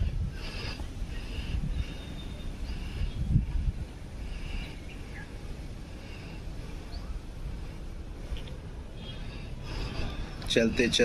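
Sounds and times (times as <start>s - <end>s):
low rumble on microphone: 0.0s - 11.0s
faint bird chirps: 1.2s - 3.4s.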